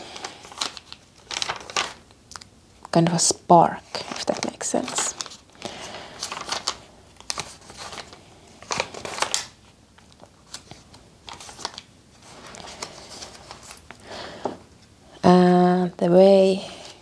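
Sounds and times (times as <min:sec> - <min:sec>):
notebook pages rustling: 0:00.0 - 0:02.1, 0:03.7 - 0:14.0.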